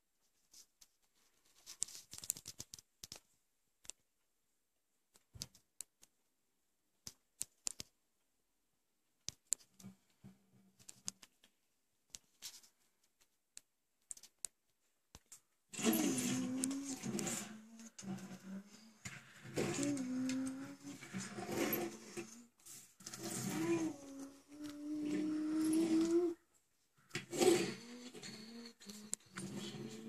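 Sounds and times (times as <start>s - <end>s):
toy cars clicking on tabletop: 15.2s - 22.4s.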